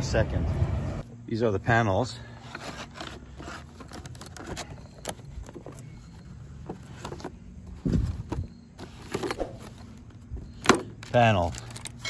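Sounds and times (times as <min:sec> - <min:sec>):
plastic packaging crackling: 0:11.0 - 0:12.0.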